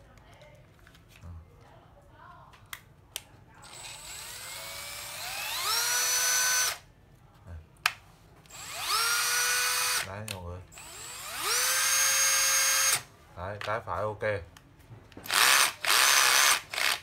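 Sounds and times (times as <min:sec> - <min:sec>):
cordless drill motor whine: 0:03.6 - 0:06.8, 0:08.5 - 0:10.1, 0:10.7 - 0:13.1, 0:15.3 - 0:17.0.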